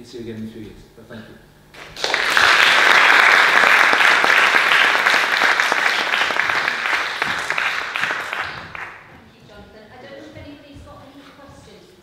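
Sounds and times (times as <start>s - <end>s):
audience applauding: 1.8s - 9.1s.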